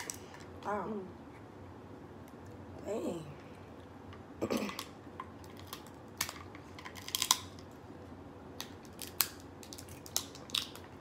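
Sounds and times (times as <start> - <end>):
crab shells cracking: 4.8 - 7.7, 8.6 - 11.0.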